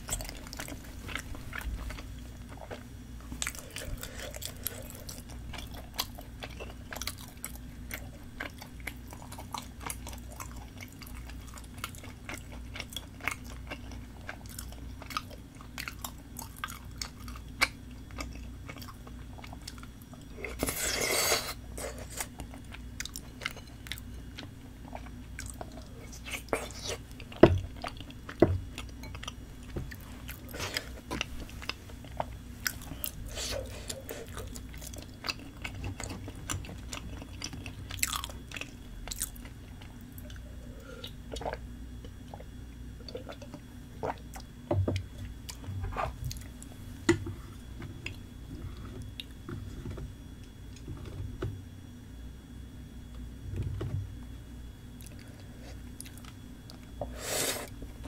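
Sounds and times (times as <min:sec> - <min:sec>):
close chewing and biting: 0:00.0 - 0:29.4, 0:30.2 - 0:41.6.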